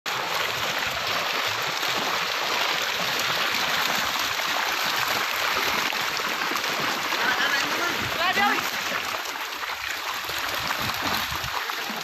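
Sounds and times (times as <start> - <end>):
water splashing and churning: 0.1 - 12.0.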